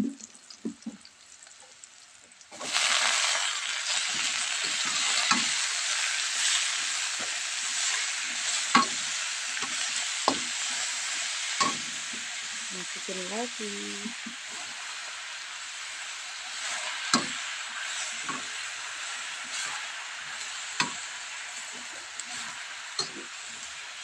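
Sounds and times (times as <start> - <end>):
vegetables sizzling in a wok: 0.0 - 24.0
metal spatula scraping wok: 16.4 - 23.8.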